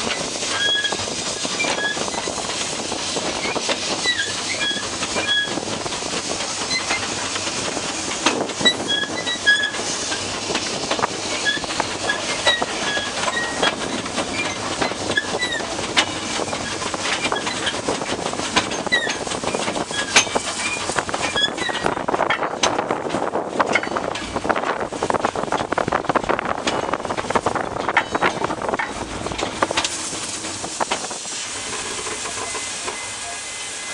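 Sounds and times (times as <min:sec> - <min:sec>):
train running rumble: 0:00.0 - 0:33.9
wheels clicking over rail joints: 0:00.0 - 0:33.9
high wheel squeaks: 0:00.1 - 0:02.5, 0:03.3 - 0:05.8, 0:06.6 - 0:10.4, 0:11.1 - 0:22.0, 0:31.5 - 0:33.9.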